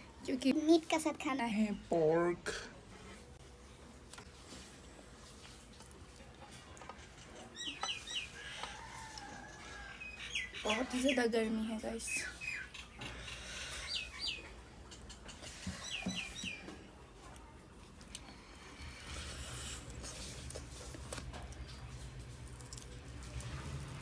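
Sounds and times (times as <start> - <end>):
bird chirping: 7.2 - 8.6, 10.0 - 11.2, 12.1 - 16.7.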